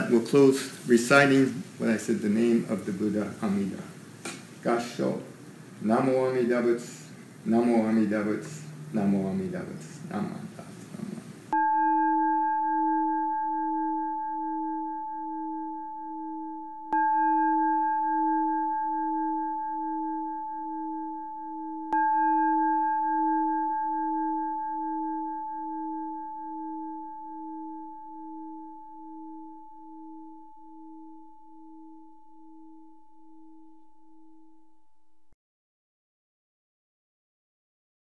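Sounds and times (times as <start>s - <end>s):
bowl bell ringing: 11.5s - 34.8s.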